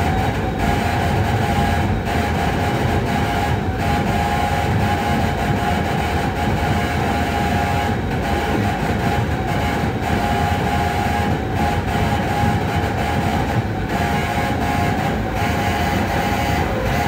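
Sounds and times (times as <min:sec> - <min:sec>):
harsh electronic rumbling noise: 0:00.0 - 0:17.0
high electronic drone: 0:14.2 - 0:17.0.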